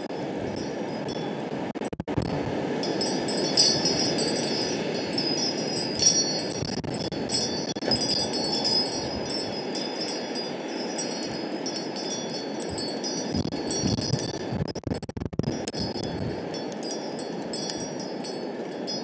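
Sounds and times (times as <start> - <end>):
wind chimes tinkling: 0.5 - 1.4, 2.8 - 14.4, 15.5 - 19.0
wind rushing: 2.5 - 14.2.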